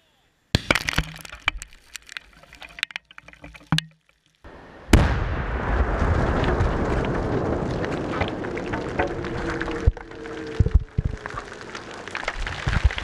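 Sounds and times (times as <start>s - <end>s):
loud explosive blast: 4.5s - 9.0s.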